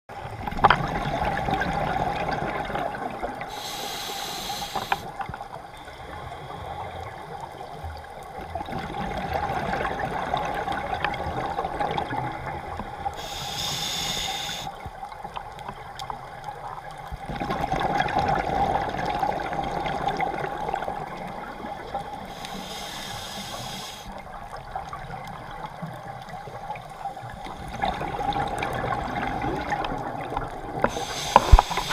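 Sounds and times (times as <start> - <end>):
hissing regulator inhalations: 3.5 - 5.2, 13.1 - 14.8, 22.1 - 24.2, 30.8 - 31.9.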